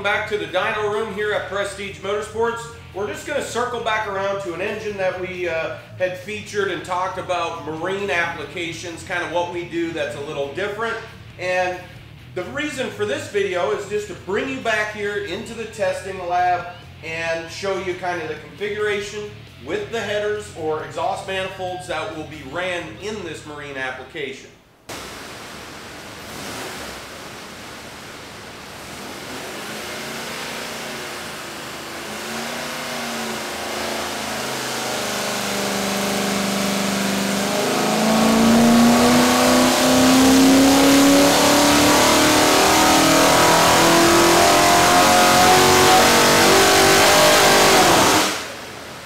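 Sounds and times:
engine revving on dynamometer: 24.9s - 49.0s.

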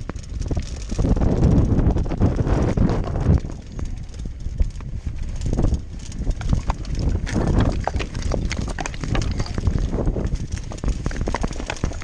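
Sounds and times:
bike tyres crunching on stones: 0.0s - 12.0s
low wind rumble on microphone: 0.0s - 12.0s
mountain bike rattling: 0.0s - 12.0s.

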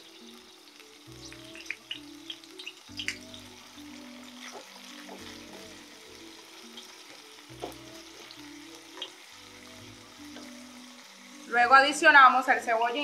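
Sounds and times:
fish sizzling in a frying pan: 0.0s - 13.0s
soft background music: 0.0s - 13.0s
spatula tapping a pan: 7.5s - 9.2s.

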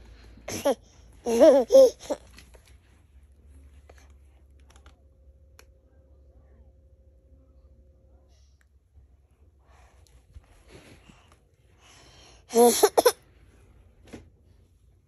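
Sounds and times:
toddler giggling and squealing: 0.5s - 2.2s.

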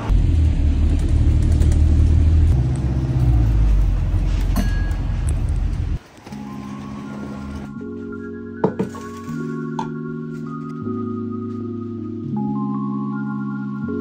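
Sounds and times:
moving vehicle rumble: 0.0s - 7.8s
soft music with held notes: 6.0s - 14.0s.

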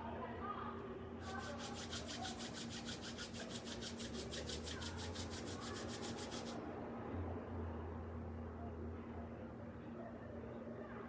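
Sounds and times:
palms rubbing together: 1.2s - 6.6s.

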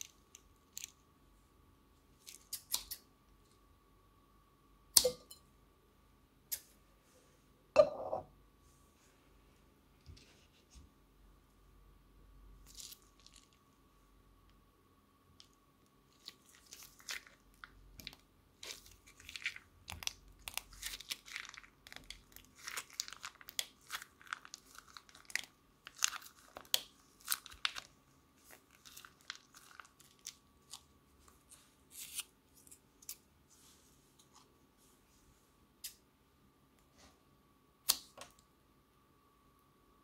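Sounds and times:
beaded slime crackling and popping: 16.1s - 30.9s.

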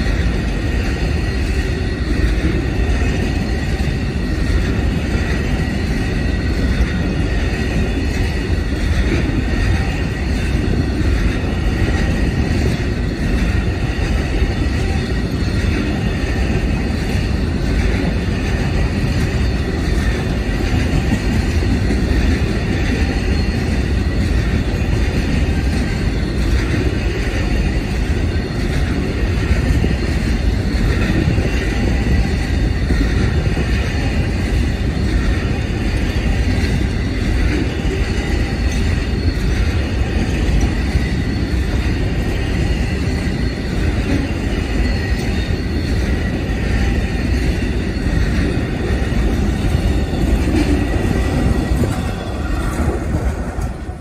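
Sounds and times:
train wheels rumbling on track: 0.0s - 54.0s.

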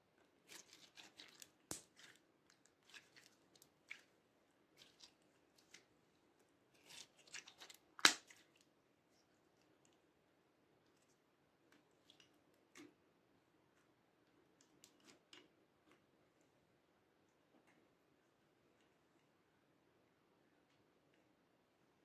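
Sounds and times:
slime crackling and popping: 0.5s - 4.1s, 6.8s - 8.6s.

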